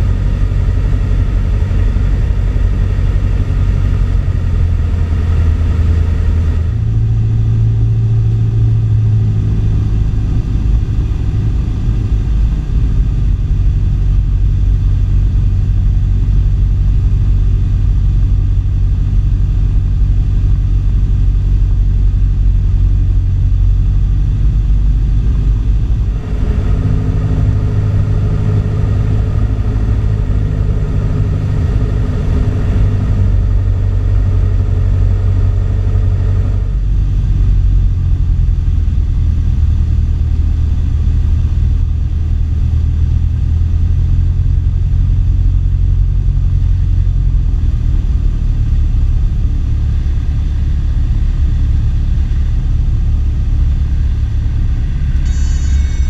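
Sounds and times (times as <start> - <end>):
propeller plane engine droning: 0.0 - 56.0.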